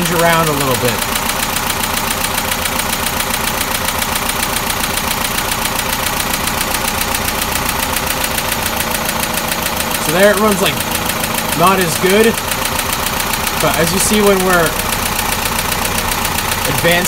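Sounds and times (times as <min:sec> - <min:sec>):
engine idling: 0:00.0 - 0:17.0.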